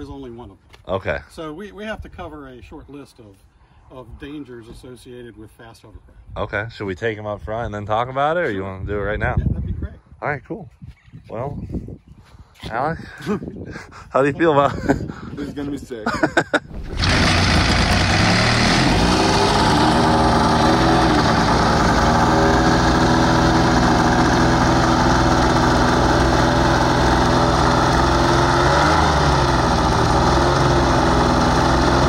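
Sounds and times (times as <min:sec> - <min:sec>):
hovercraft engine and fan running: 0:16.8 - 0:32.0.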